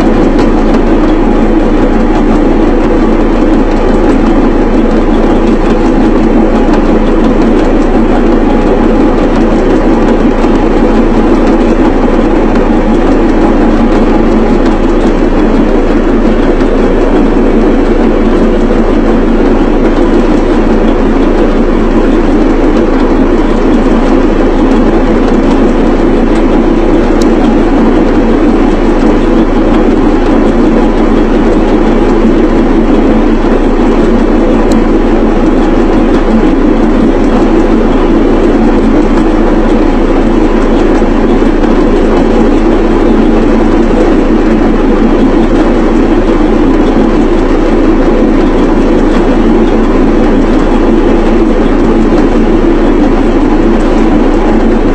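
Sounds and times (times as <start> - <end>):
electric pounding machine running: 0.0 - 54.9.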